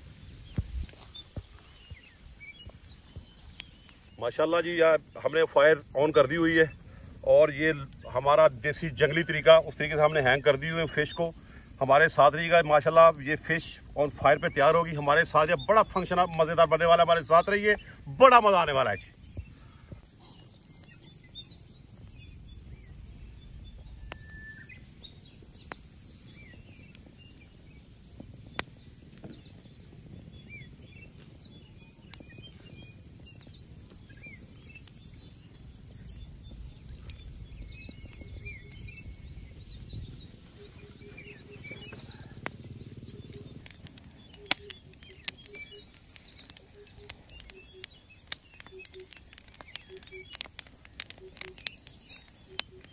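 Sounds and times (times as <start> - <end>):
low outdoor rumble: 0.0 - 52.9
small birds chirping: 0.0 - 52.9
sharp clicks: 41.9 - 52.9.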